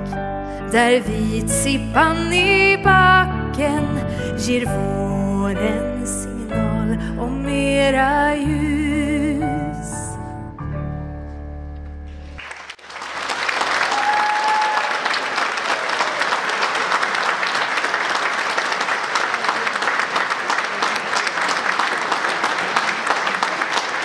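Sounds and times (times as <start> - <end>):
audience clapping: 12.1 - 24.0.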